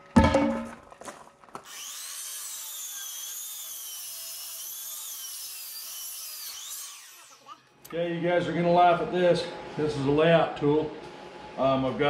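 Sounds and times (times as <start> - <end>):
miter saw blade whine: 1.7 - 7.8
man talking: 7.9 - 11.0, 11.6 - 12.0.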